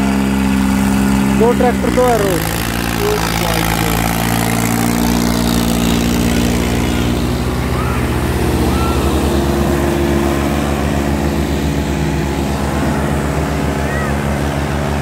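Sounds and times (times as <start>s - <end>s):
tractor engines under load: 0.0s - 15.0s.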